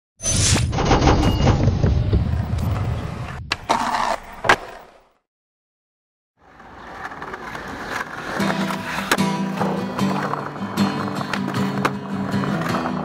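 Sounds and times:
dense rumble with sharp hits: 0.6s - 3.6s.

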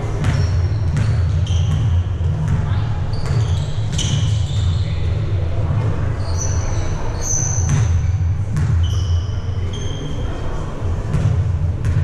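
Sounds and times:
low rumble of hall: 0.0s - 12.0s
sneakers squeaking on court: 0.1s - 5.2s, 6.2s - 10.4s.

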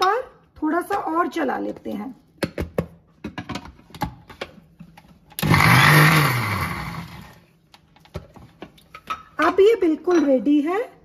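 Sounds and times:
mixer grinder motor whirring: 5.4s - 7.4s.

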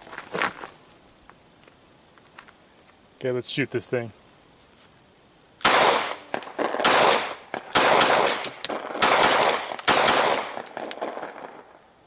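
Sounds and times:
pistol shots with echo: 5.6s - 11.6s.

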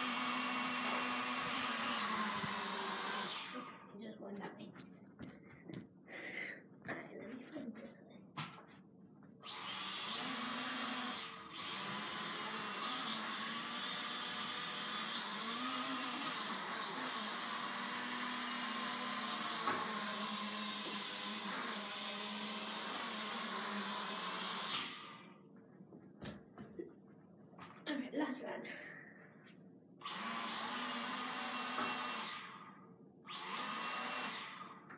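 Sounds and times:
toy drone propellers whining: 0.0s - 3.8s, 9.4s - 25.1s, 30.0s - 32.6s, 33.3s - 34.7s.

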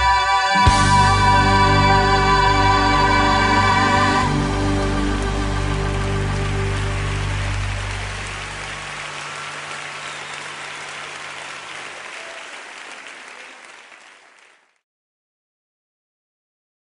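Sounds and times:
band holding low chord: 0.0s - 10.1s
audience applauding: 0.7s - 14.8s.

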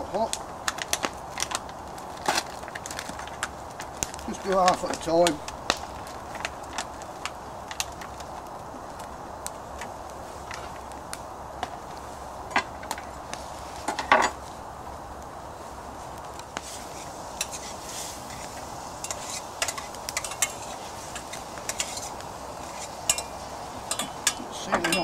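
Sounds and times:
gas burner hiss: 0.0s - 25.0s
metal utensil scraping in pan: 17.4s - 25.0s.

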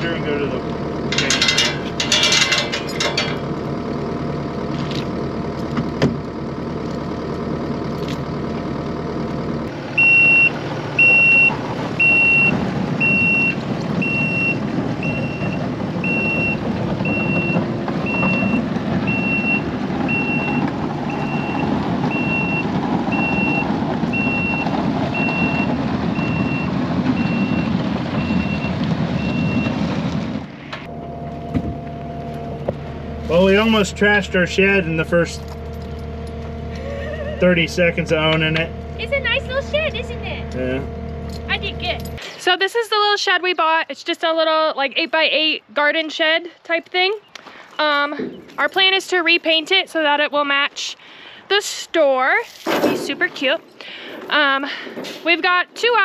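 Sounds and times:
loader engine running: 0.0s - 56.0s
backup alarm beeping: 10.0s - 29.8s.

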